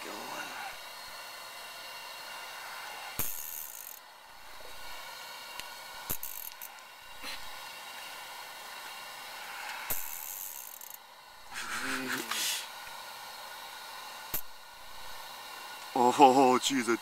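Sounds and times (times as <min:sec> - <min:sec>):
fishing reel drag giving line: 0:03.2 - 0:04.0, 0:06.1 - 0:06.7, 0:09.9 - 0:11.0.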